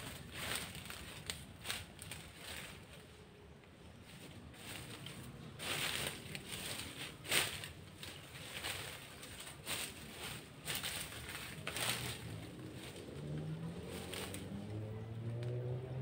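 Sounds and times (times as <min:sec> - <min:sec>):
rustling in dry leaves: 0:00.0 - 0:16.0.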